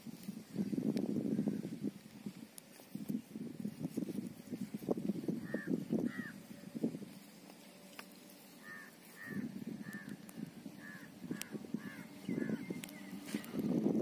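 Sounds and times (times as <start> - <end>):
hose rustling and scraping: 1.9 - 10.8, 12.8 - 14.0
bird calling: 5.4 - 6.8, 7.7 - 13.7.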